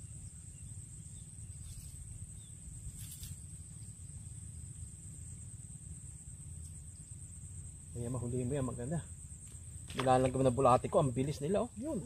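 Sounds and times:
insects chirring: 0:00.0 - 0:12.0
low background rumble: 0:00.0 - 0:12.0
brief rustle: 0:02.9 - 0:03.4.

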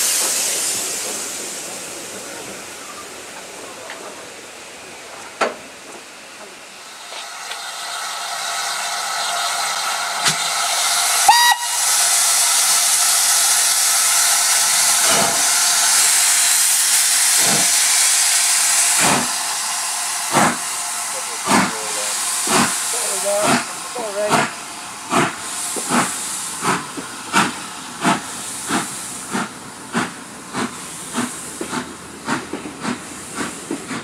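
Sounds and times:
steam hissing from cylinders: 0:00.0 - 0:34.0
steam locomotive whistle: 0:11.1 - 0:12.5.

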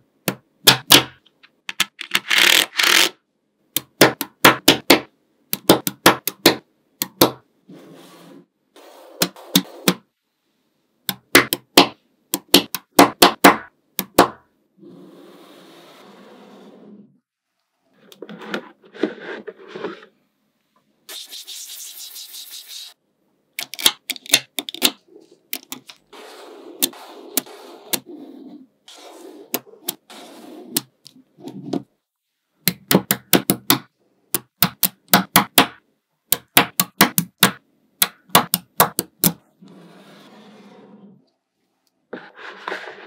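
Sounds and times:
balls scraping and rattling: 0:17.9 - 0:20.2.

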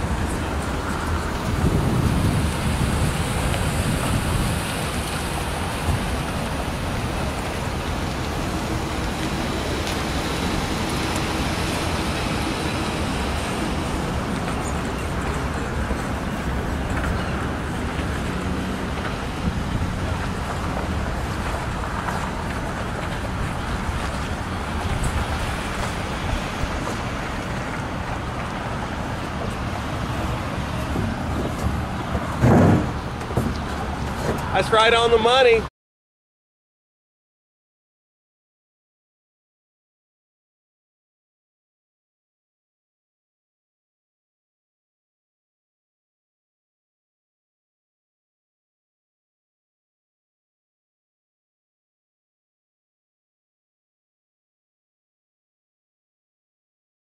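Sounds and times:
wind on microphone: 0:00.0 - 0:34.5
car driving: 0:00.0 - 0:35.4
road traffic: 0:00.0 - 0:35.7.

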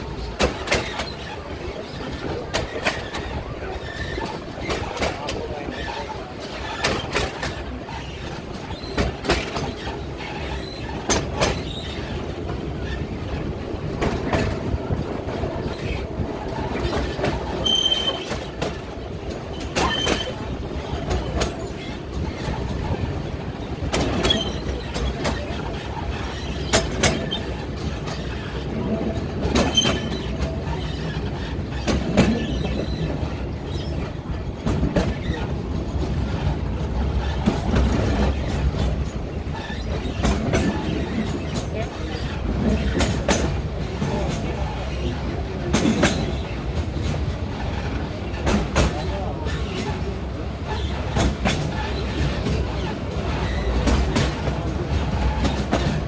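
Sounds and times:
train rumbling along track: 0:00.0 - 0:56.0
wheels clacking over rail joints: 0:00.0 - 0:56.0
wheel squeals: 0:00.8 - 0:12.2, 0:16.6 - 0:18.8, 0:19.5 - 0:23.0, 0:24.0 - 0:28.6, 0:29.5 - 0:34.2.

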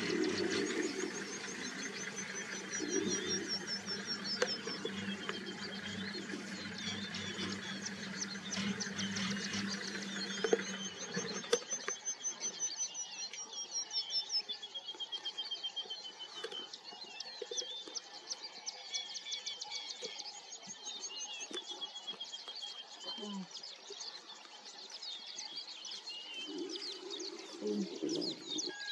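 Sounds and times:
low steady hum: 0:00.0 - 0:11.6
wild birds singing and chirping: 0:00.0 - 0:28.9.

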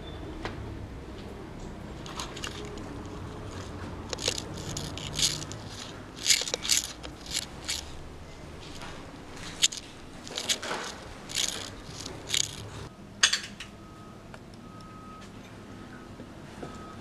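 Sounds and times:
footsteps crunching on debris: 0:02.1 - 0:08.0, 0:08.6 - 0:12.9.

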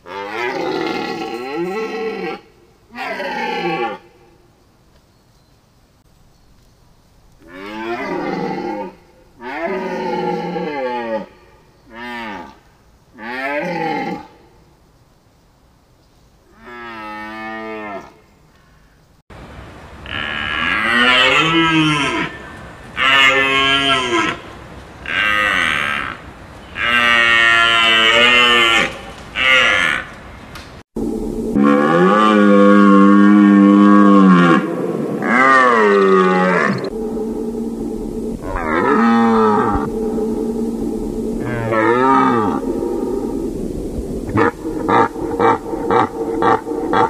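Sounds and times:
background hiss: 0:00.0 - 0:16.8, 0:30.6 - 0:47.0.

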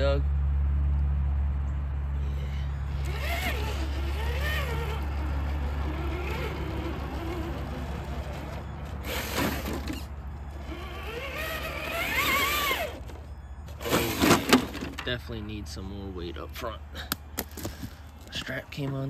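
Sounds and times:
electric motor whining: 0:02.2 - 0:14.9.

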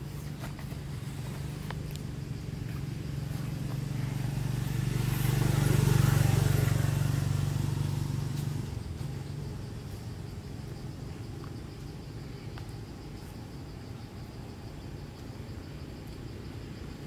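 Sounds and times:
vehicle engine passing by: 0:00.5 - 0:12.2.

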